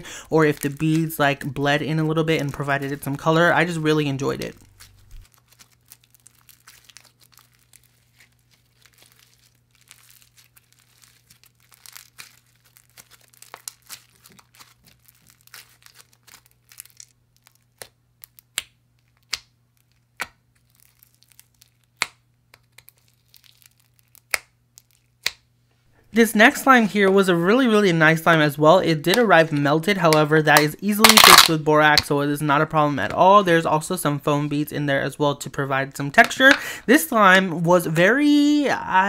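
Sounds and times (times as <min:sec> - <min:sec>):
slime crackling and popping: 0:00.1 - 0:03.3, 0:04.3 - 0:25.5, 0:30.1 - 0:31.6.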